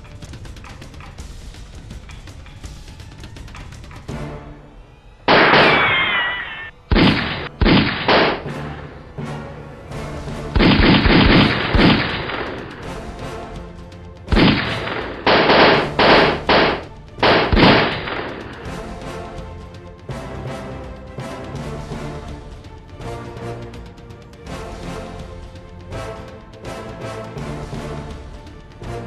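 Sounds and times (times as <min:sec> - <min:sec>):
background music: 0:00.0 - 0:29.0
falling whine: 0:05.3 - 0:07.5
gunshots: 0:05.3 - 0:08.8, 0:10.5 - 0:13.0, 0:14.3 - 0:18.9.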